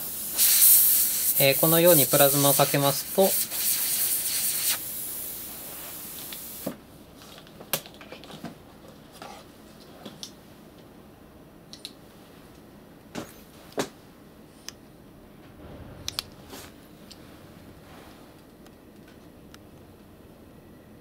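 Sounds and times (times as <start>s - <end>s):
plasma nozzle hissing: 0.0s - 6.7s.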